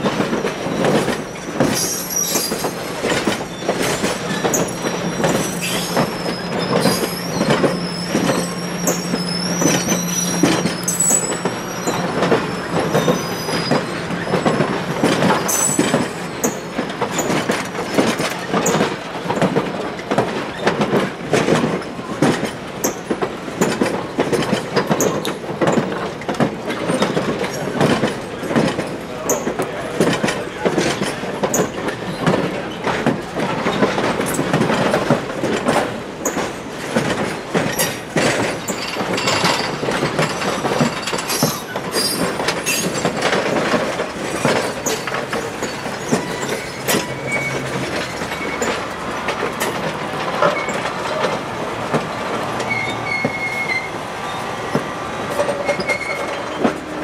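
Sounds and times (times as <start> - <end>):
train wheels clattering over rail joints: 0.0 - 57.0
high-pitched wheel squeal: 1.8 - 2.8, 4.3 - 14.5, 44.8 - 48.8, 52.6 - 54.5, 55.4 - 56.8.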